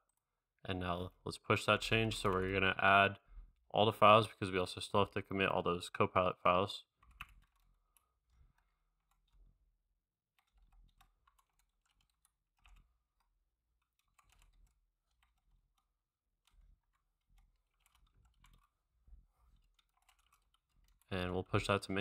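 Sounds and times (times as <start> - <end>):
faint keyboard typing: 1.8 - 2.8, 6.8 - 22.0.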